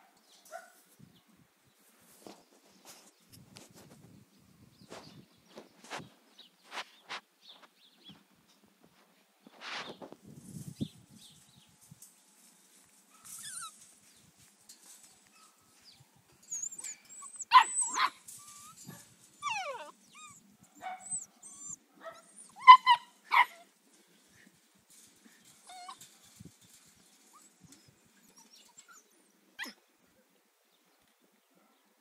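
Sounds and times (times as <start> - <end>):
puppies yipping and barking: 13.1 - 13.9, 16.4 - 23.7, 25.5 - 29.8.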